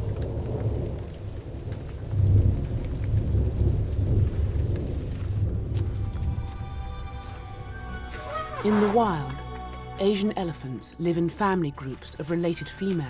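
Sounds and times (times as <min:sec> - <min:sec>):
thunder rumbling: 0:00.0 - 0:09.6
steady rain: 0:00.0 - 0:13.0.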